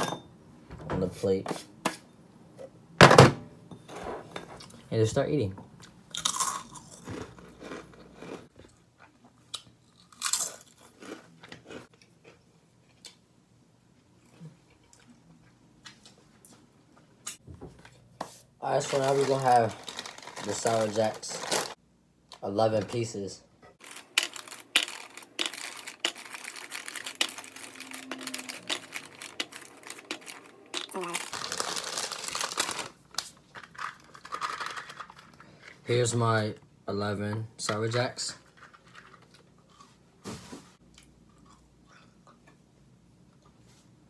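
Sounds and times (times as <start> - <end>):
person crunching chips: 6.1 - 12.4, 18.8 - 21.8, 23.8 - 35.2
crinkly plastic bag handled: 18.6 - 21.8, 23.8 - 35.1.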